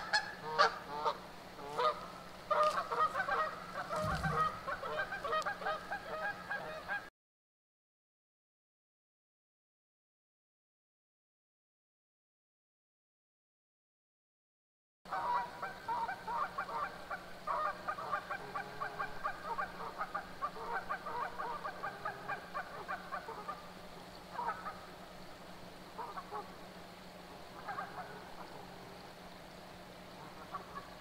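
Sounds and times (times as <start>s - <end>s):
geese honking: 0.0s - 7.1s, 15.1s - 25.0s, 25.9s - 26.6s, 27.3s - 29.0s, 30.1s - 31.0s.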